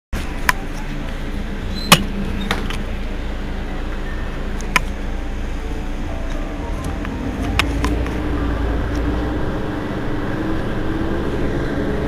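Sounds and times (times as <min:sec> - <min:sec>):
bus diesel engine idling: 0:00.2 - 0:12.0.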